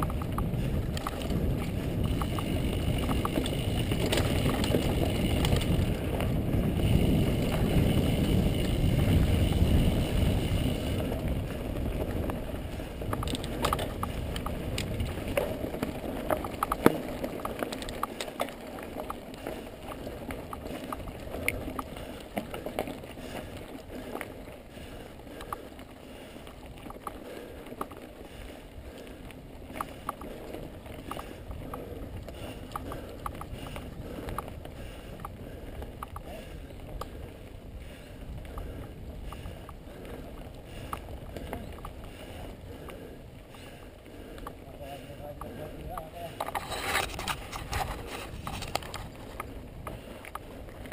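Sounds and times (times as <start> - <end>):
wind on microphone: 0.0 - 16.0
bike clicks and rattles: 0.0 - 50.9
bike tyre rumble: 0.0 - 50.9.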